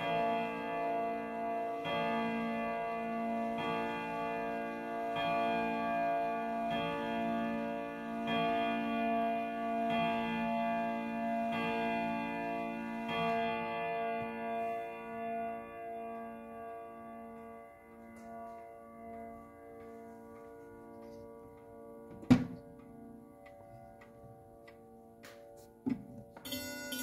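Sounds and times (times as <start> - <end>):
wall clock chime striking: 0.0 - 20.4, 26.4 - 27.0.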